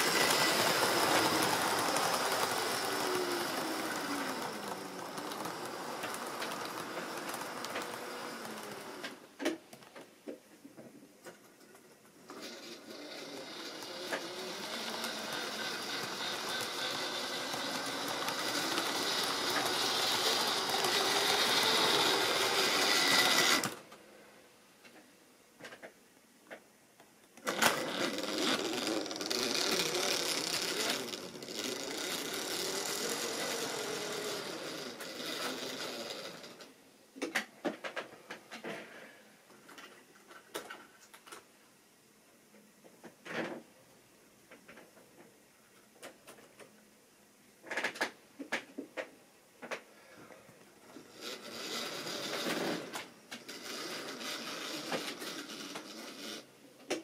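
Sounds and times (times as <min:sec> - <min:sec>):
train wheels rattling on rail joints: 0:00.0 - 0:09.0, 0:13.1 - 0:23.8
model train motor whirring: 0:00.0 - 0:09.2, 0:12.3 - 0:23.8, 0:27.4 - 0:36.7, 0:50.9 - 0:57.0.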